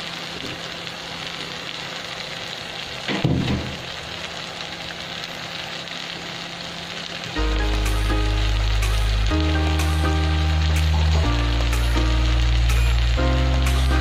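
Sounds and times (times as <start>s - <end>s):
greens sizzling in hot oil: 0.0s - 14.0s
background music: 7.4s - 14.0s.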